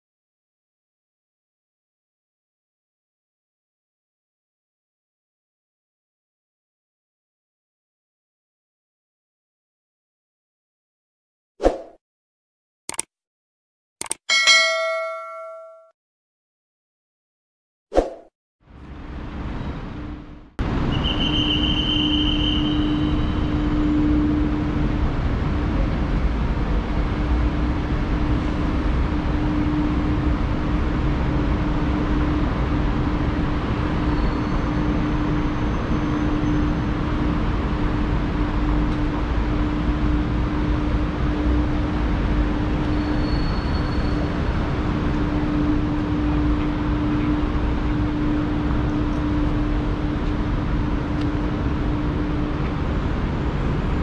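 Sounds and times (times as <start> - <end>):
short high tone: 14.3 - 15.9
constant low hum: 44.8 - 54.0.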